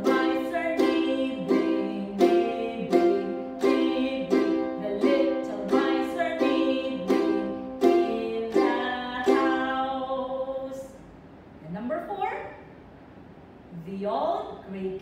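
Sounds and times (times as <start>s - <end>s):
ukulele strumming: 0.0s - 10.4s
woman singing: 0.0s - 11.0s.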